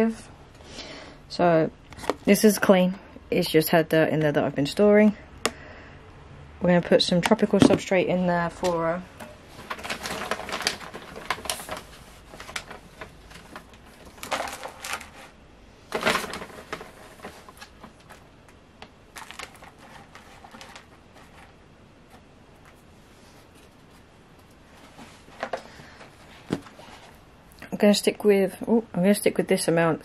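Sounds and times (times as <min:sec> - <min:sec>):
substrate rustling in plastic tub: 0:08.6 - 0:27.2.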